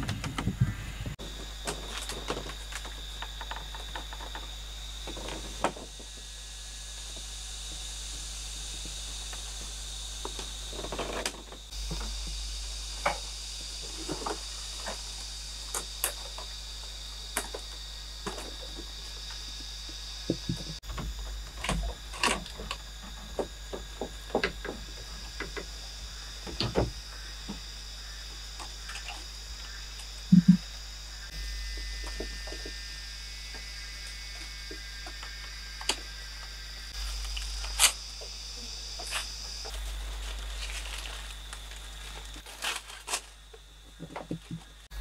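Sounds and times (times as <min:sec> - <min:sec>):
high insect drone: 0:00.0 - 0:45.0
bamboo poles knocking: 0:20.3 - 0:25.7, 0:30.3 - 0:30.6.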